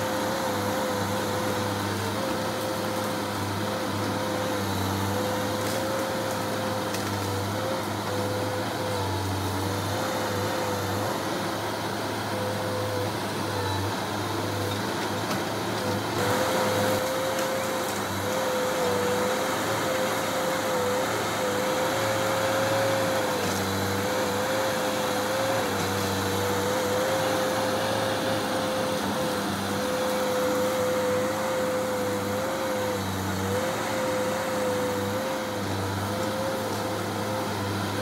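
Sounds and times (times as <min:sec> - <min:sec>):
diesel engine of heavy machinery: 0:00.0 - 0:38.0.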